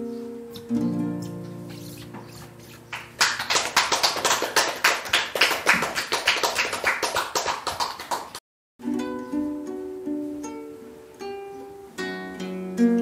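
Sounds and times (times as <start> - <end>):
acoustic guitar notes: 0.0 - 3.2, 8.8 - 13.0
audience clapping: 2.8 - 8.4.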